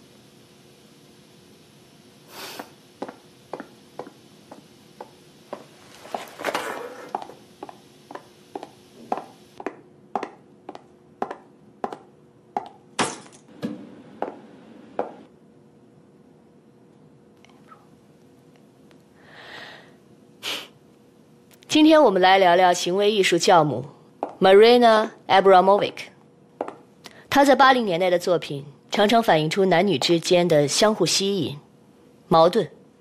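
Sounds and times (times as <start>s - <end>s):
high heels clicking on hard floor: 3.0s - 12.8s, 14.2s - 15.3s, 24.2s - 24.5s, 26.6s - 26.9s.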